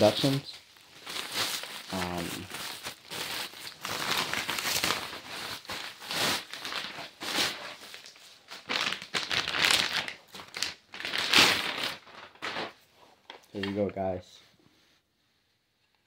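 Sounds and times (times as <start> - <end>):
plastic packaging crinkling: 0.0 - 13.8.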